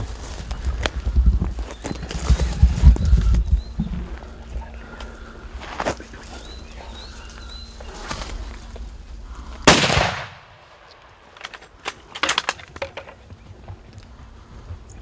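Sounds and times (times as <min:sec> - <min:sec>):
rifle shot: 0:09.6 - 0:11.4.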